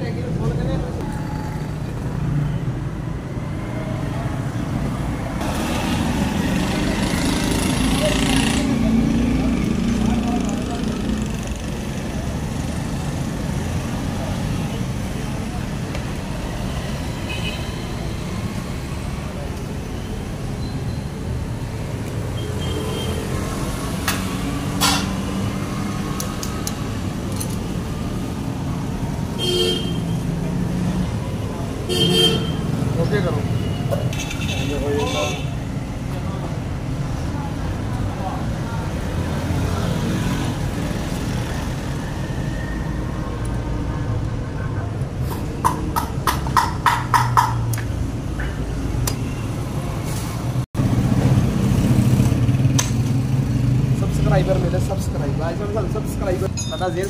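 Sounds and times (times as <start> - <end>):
road traffic rumble: 0.0 - 57.0.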